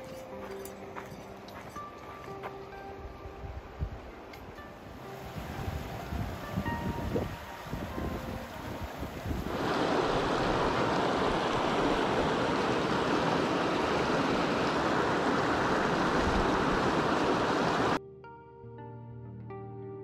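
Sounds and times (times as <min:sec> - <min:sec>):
stream water running over rocks: 0:05.1 - 0:18.0
wind buffeting microphone: 0:05.2 - 0:18.0.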